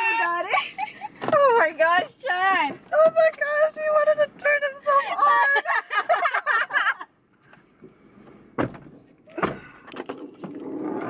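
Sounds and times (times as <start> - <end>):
woman laughing: 0.0 - 1.7, 4.8 - 7.1
dull thumps: 8.5 - 10.6.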